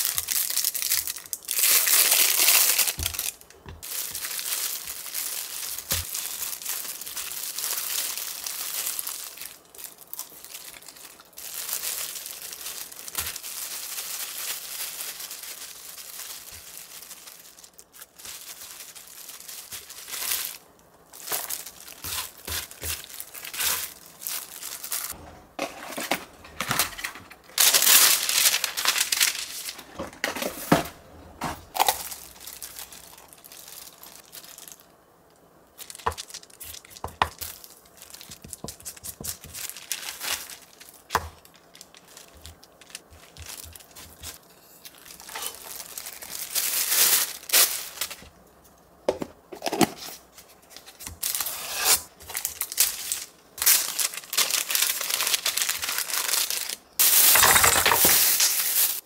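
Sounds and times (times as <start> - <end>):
paper and plastic rustling: 0.0 - 34.9, 35.8 - 59.0
plastic gloves crinkling: 0.0 - 59.0.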